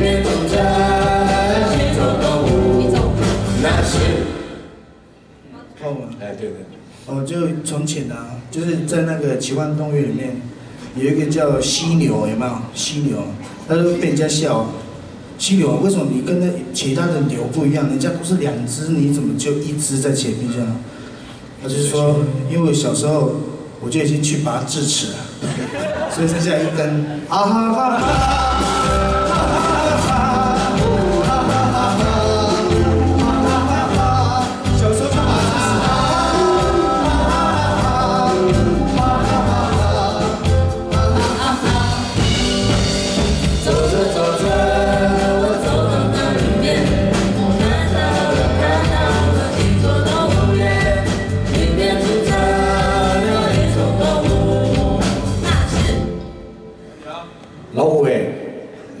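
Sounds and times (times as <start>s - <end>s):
band playing song with vocals: 0.0s - 4.9s, 27.8s - 56.6s.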